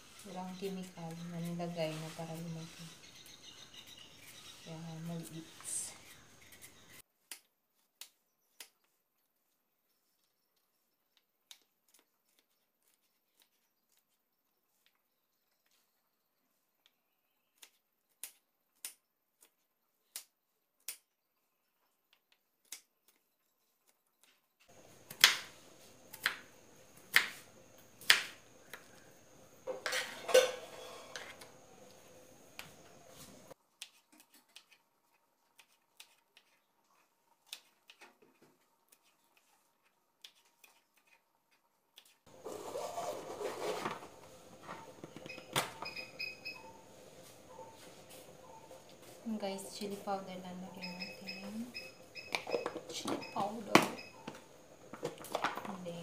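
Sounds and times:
kitchenware clattering: 29.7s - 31.4s.

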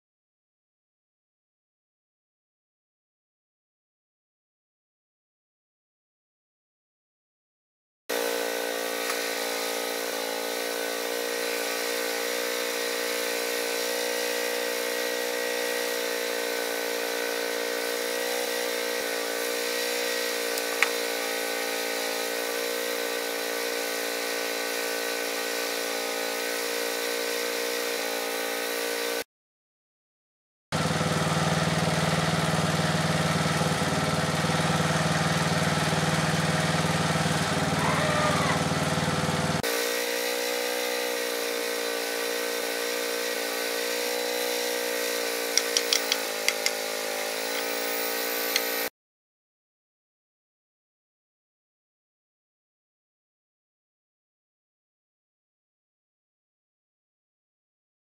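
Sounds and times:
sawmill engine running: 8.1s - 29.2s, 30.8s - 48.9s.

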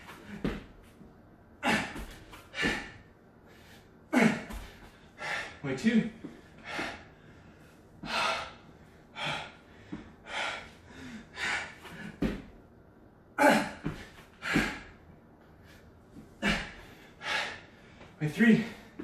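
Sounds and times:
man breathing hard: 1.6s - 5.6s, 6.2s - 12.5s, 13.4s - 19.0s
thumps on exercise mat: 12.2s - 12.5s.

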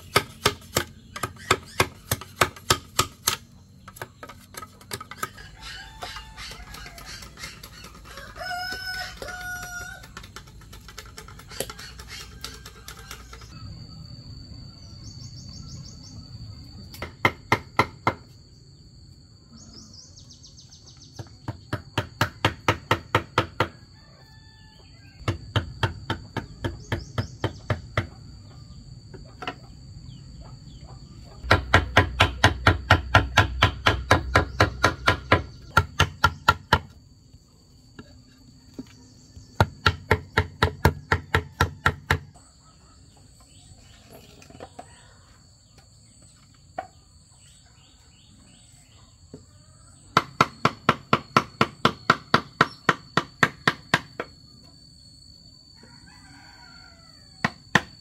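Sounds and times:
mallet striking chisel into bamboo: 0.0s - 5.3s, 31.4s - 37.0s
rooster crowing: 5.3s - 10.2s, 23.6s - 25.3s, 55.7s - 57.8s.

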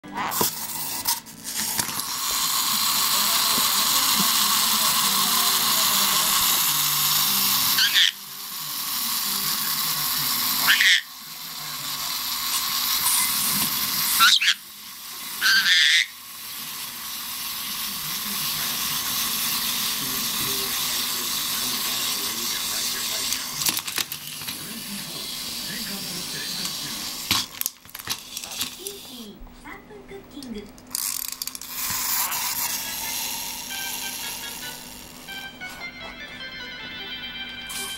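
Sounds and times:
clockwork toy whirring: 0.2s - 29.3s, 30.4s - 37.9s
parrot squawking: 7.8s - 8.2s, 10.7s - 11.1s, 14.1s - 14.6s, 15.4s - 16.2s.

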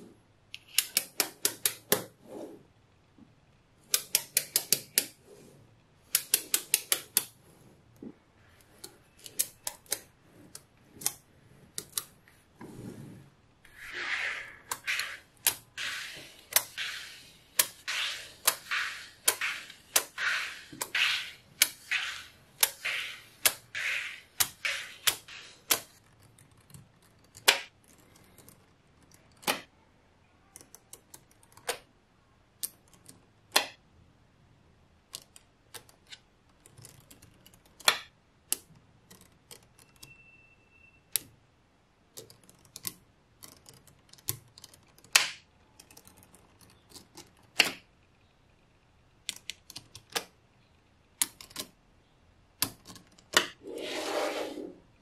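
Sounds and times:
magnetic balls clicking: 3.8s - 5.2s, 6.1s - 7.4s, 13.7s - 29.7s, 49.2s - 50.4s, 51.2s - 51.8s.

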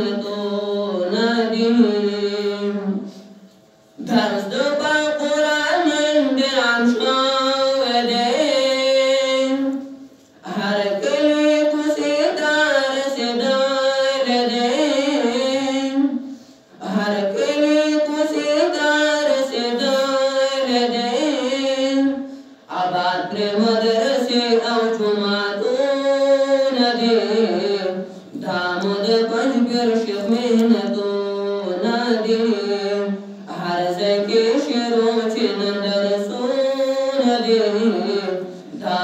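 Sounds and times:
man chanting unaccompanied: 10.4s - 16.2s, 16.8s - 39.0s.

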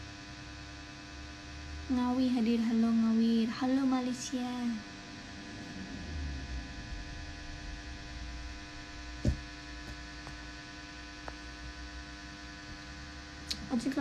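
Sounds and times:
electrical hum: 0.0s - 14.0s
low rumble: 4.6s - 11.1s
short knock: 9.2s - 10.0s.

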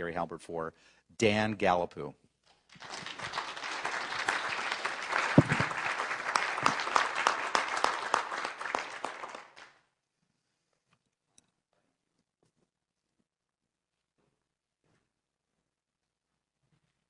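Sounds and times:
audience applauding: 2.7s - 9.8s.

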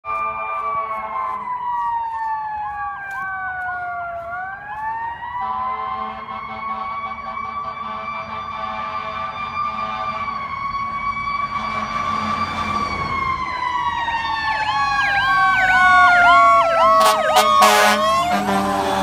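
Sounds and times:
low horn blare: 0.0s - 1.8s, 5.3s - 10.5s, 11.4s - 13.1s, 16.8s - 19.0s
wailing siren: 0.0s - 19.0s
yelping siren: 0.0s - 19.0s.

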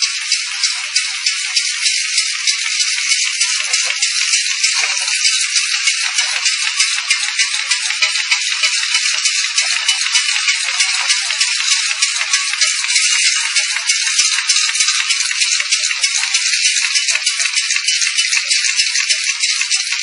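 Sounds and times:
labeling machine rattling: 0.0s - 20.0s.

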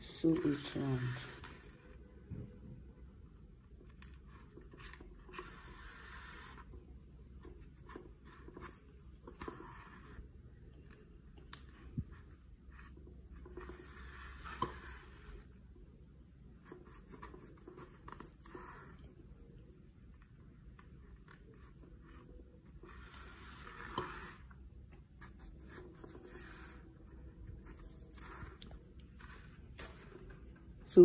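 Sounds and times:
needle and thread scratching: 20.8s - 30.3s.

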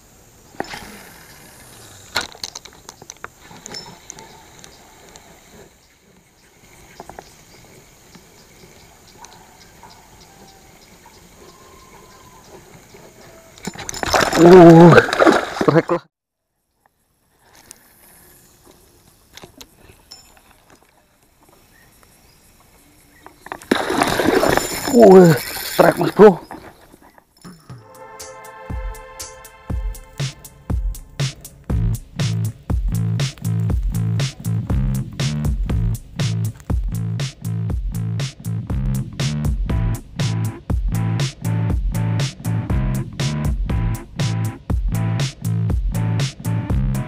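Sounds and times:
fishing line hissing out: 0.0s - 2.4s, 17.2s - 20.1s, 21.5s - 26.4s
low even hiss: 0.0s - 9.0s.

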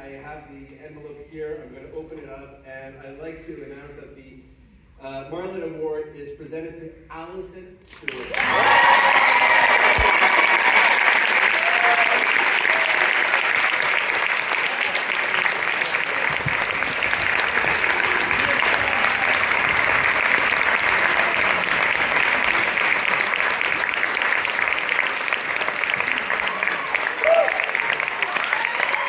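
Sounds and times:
audience applauding: 8.1s - 29.0s.

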